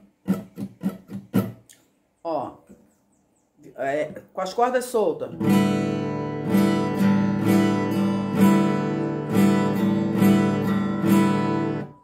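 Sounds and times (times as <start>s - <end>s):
acoustic guitar strumming: 0.0s - 1.7s, 5.3s - 12.0s.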